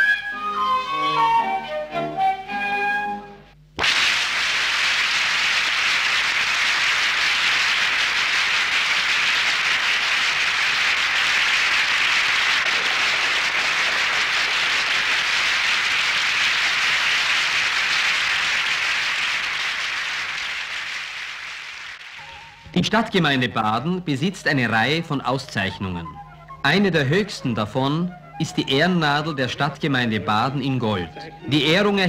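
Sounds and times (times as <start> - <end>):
audience applauding: 3.8 - 22.6.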